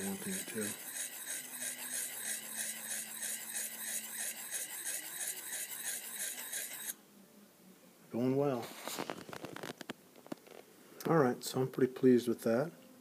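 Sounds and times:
sharpening hone on knife edge: 0:00.0 - 0:07.0.

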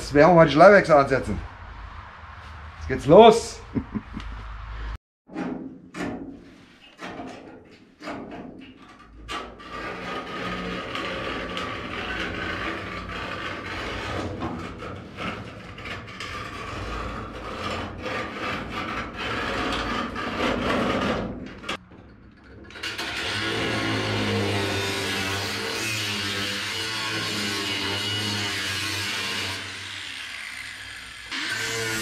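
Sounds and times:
angle grinder cutting steel: 0:22.8 - 0:32.0.

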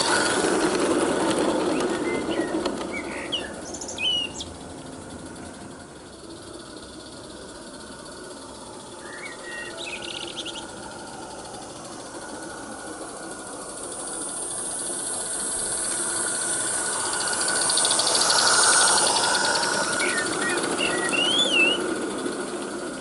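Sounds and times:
steam locomotive exhaust beats: 0:00.0 - 0:23.0
bird chirping: 0:01.7 - 0:04.5, 0:08.8 - 0:11.3, 0:16.2 - 0:21.9.

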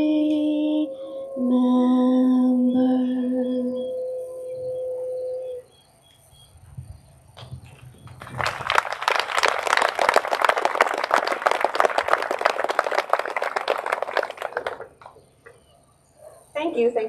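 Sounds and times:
audience applauding: 0:08.0 - 0:15.2.

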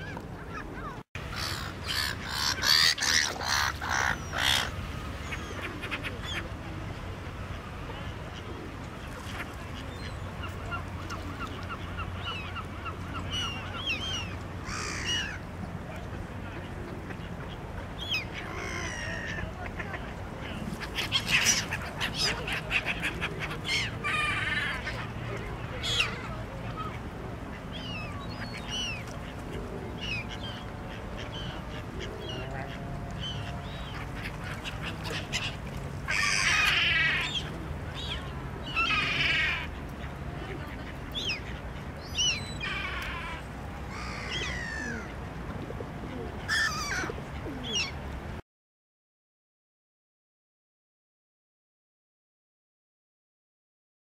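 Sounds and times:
waterbirds short calls: 0:00.0 - 0:06.6
gulls calling: 0:00.0 - 0:48.1.

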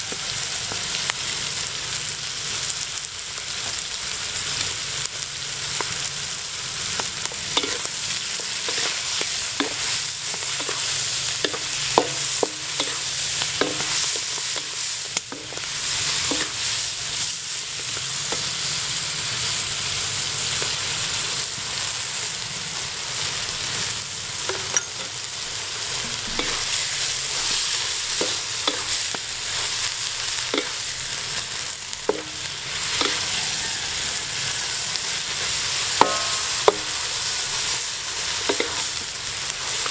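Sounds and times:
mussels sizzling in a wok: 0:00.0 - 0:39.9
wooden spatula scraping a wok: 0:07.0 - 0:17.2, 0:24.5 - 0:39.1.

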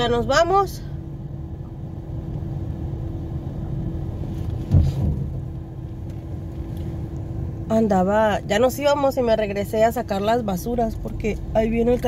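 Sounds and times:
car engine running: 0:00.0 - 0:12.0
low thump: 0:04.7 - 0:05.5.

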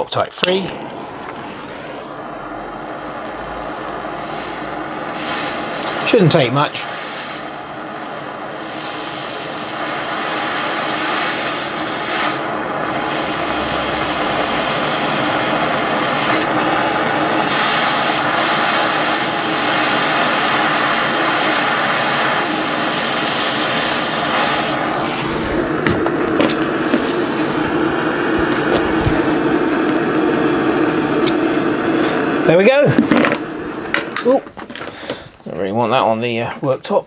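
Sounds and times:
blowtorch hissing roar: 0:00.4 - 0:35.7.

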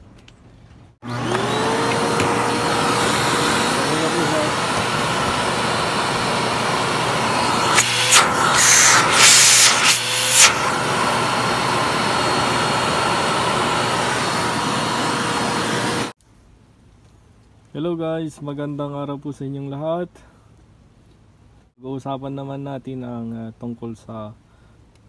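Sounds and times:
vacuum cleaner running: 0:01.0 - 0:16.2.

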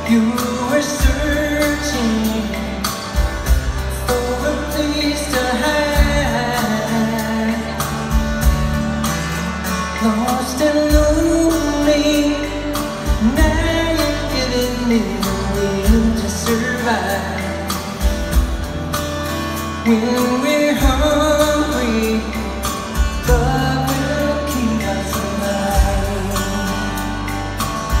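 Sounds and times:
sung vocal harmonies: 0:00.0 - 0:08.2, 0:19.8 - 0:27.3
live band playing soft ballad: 0:00.0 - 0:28.0.

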